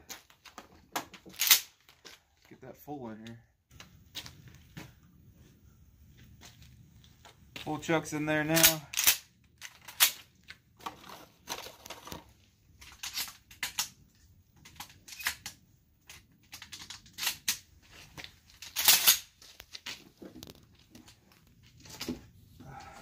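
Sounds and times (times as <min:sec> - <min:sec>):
shotgun handling clicks: 0:01.4 - 0:01.7, 0:08.5 - 0:10.2.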